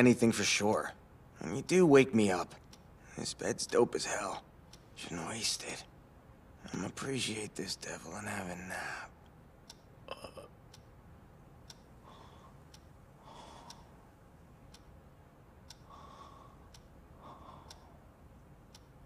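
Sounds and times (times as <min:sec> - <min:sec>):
light ticks: 0:02.4 - 0:06.0, 0:09.2 - 0:09.9, 0:10.7 - 0:11.0, 0:11.6 - 0:14.0, 0:14.6 - 0:15.0, 0:15.6 - 0:19.0
person breathing asleep: 0:12.0 - 0:12.6, 0:13.2 - 0:14.0, 0:15.8 - 0:18.1.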